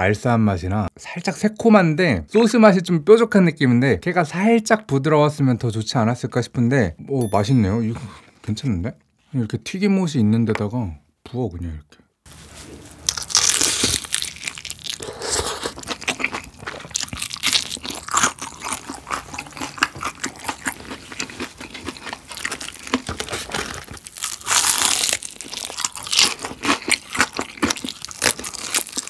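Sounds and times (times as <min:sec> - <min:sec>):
crunchy chewing: 0:13.0 - 0:29.0.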